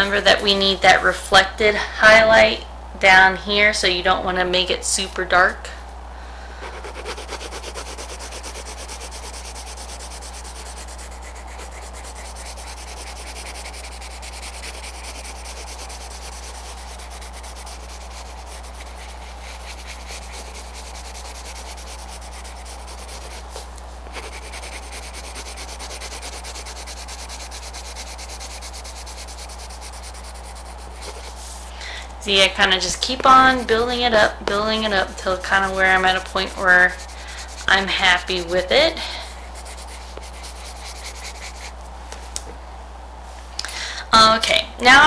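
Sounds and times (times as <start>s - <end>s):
steady low hum: 0.0s - 45.0s
pencil scratching on paper: 6.6s - 31.7s, 34.8s - 41.8s.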